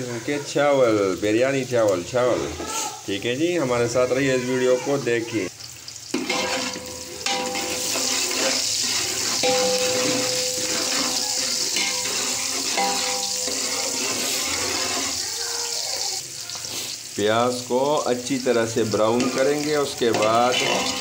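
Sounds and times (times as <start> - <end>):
onions sizzling in hot oil: 0.0 - 21.0
metal spoon scraping pot: 6.2 - 15.2.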